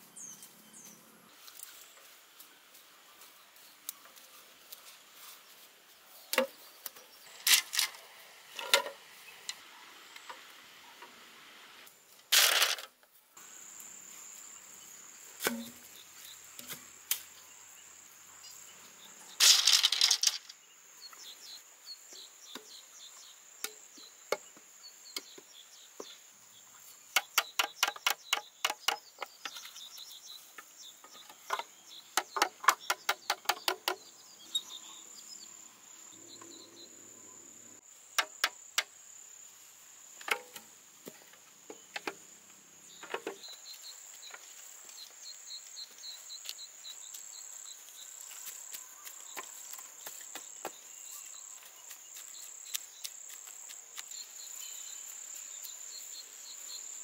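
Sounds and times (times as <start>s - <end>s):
insects chirring: 6.2s - 57.0s
bamboo clatter: 6.3s - 8.0s, 8.6s - 9.0s, 12.2s - 13.0s, 15.4s - 17.3s, 19.4s - 20.6s, 27.1s - 29.8s, 30.4s - 34.0s, 40.2s - 42.2s, 43.0s - 43.6s
sharp knocks on bamboo: 15.4s - 15.9s, 31.5s - 34.0s, 38.2s - 38.9s.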